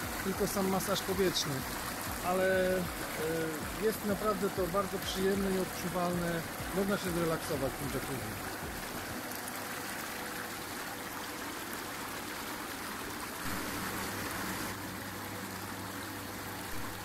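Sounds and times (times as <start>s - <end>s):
steady low hum: 0.0s - 10.5s
hot tub water bubbling: 0.0s - 17.0s.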